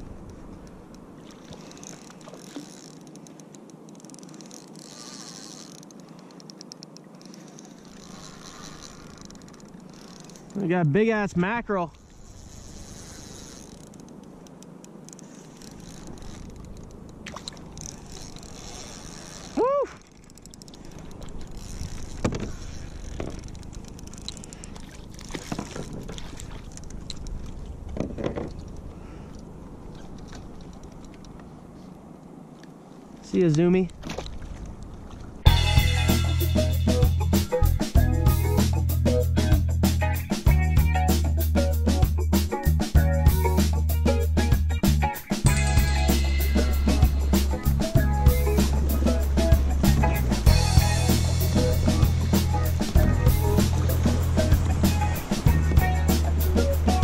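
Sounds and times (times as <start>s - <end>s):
fishing reel whirring: 1.4s - 10.6s, 12.0s - 24.8s
steady low rumble: 43.0s - 57.0s.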